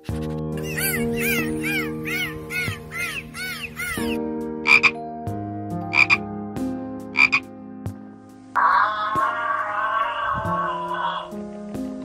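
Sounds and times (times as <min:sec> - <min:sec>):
background music: 0:00.0 - 0:12.0
wavering animal call: 0:00.6 - 0:04.9, 0:08.6 - 0:11.4
dolphin squawks: 0:00.6 - 0:05.0, 0:05.9 - 0:06.2, 0:07.2 - 0:07.5, 0:08.6 - 0:11.4.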